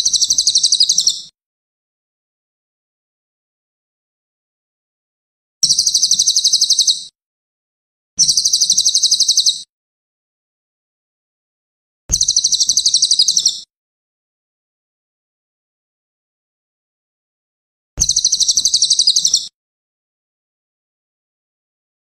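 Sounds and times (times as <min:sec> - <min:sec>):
bird singing high fast trills: 0:00.0 - 0:01.3, 0:05.6 - 0:07.1, 0:08.2 - 0:09.7, 0:12.2 - 0:13.7, 0:18.0 - 0:19.5.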